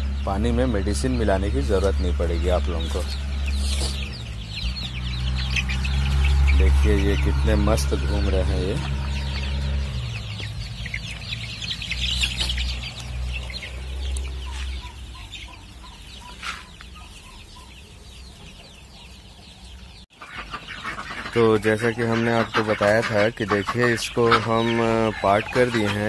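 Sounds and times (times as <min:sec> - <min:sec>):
low rumble: 0:00.0 - 0:15.5
chicks peeping and cheeping: 0:00.0 - 0:26.0.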